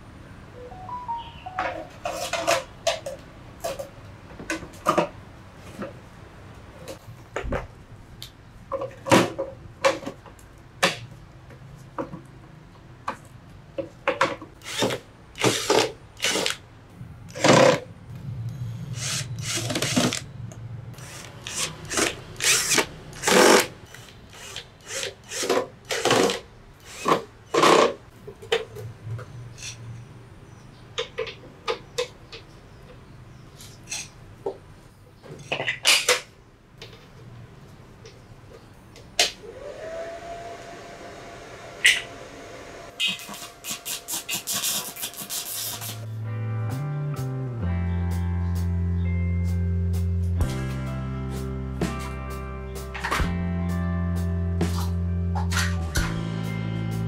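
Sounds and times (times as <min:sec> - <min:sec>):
drill drilling into sheet metal: 0:19.0 - 0:20.2, 0:21.0 - 0:27.2.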